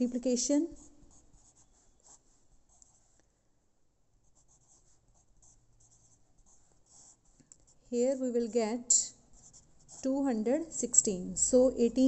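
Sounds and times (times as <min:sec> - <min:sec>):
pencil scratching on paper: 0:00.7 - 0:03.2, 0:04.2 - 0:08.2, 0:08.8 - 0:10.3.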